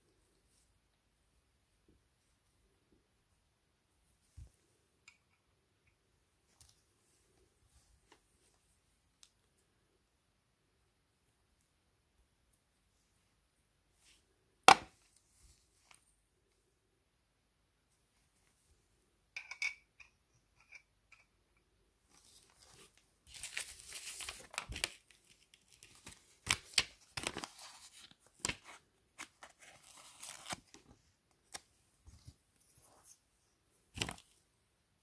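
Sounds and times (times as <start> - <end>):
paper rustling: 22.1 - 33.2.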